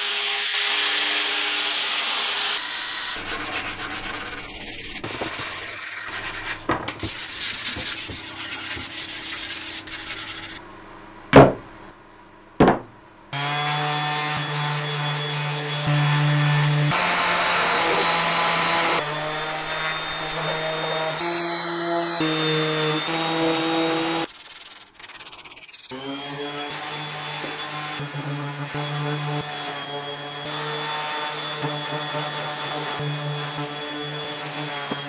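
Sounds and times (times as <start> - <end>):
orbital sander on wood: 0.0 - 10.6, 13.4 - 24.3, 25.3 - 35.0
sharp knocks: 11.3 - 11.7, 12.6 - 13.0.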